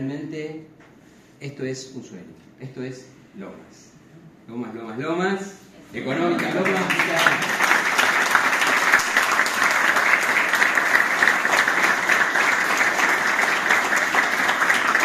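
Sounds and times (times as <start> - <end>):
crowd applauding: 6.2 - 15.0.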